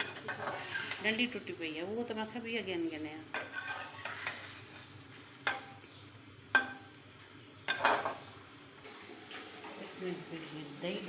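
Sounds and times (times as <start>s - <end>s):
metal spoon scraping wok: 0.0s - 1.5s, 3.3s - 5.7s
meat frying: 0.0s - 11.0s
spoon clinking against pan: 6.5s - 6.9s.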